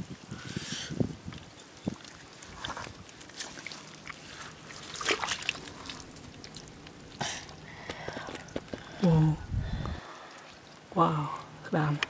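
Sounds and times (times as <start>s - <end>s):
water trickling among rocks: 0.0s - 12.0s
stones clicking and scraping: 7.8s - 9.0s.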